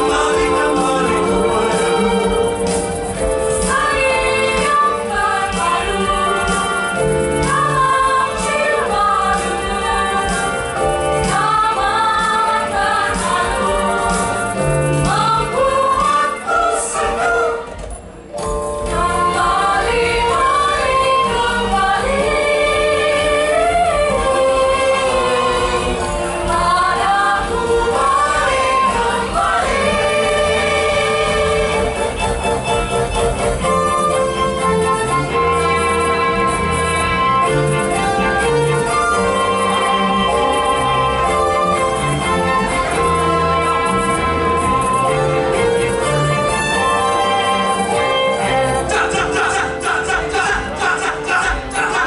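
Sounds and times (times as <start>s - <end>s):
steady beat: 0.0s - 8.5s
mixed choir singing: 0.0s - 17.9s, 18.8s - 32.7s, 34.0s - 52.0s.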